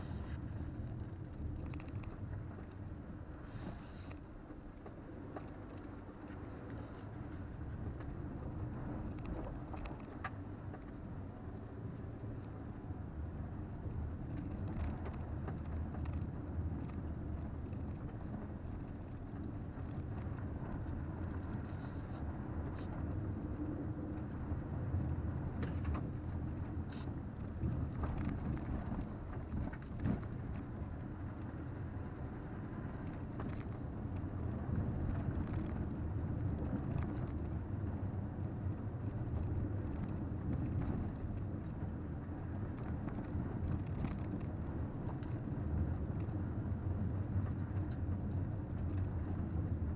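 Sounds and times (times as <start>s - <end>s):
engine and tyre rumble: 0.0s - 49.9s.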